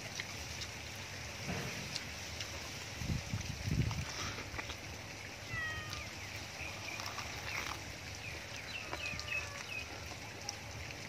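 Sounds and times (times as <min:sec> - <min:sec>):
steady outdoor hiss: 0:00.0 - 0:11.0
soft clicks of eating at bone: 0:00.1 - 0:00.8, 0:01.7 - 0:02.6
high animal calls: 0:05.4 - 0:06.2.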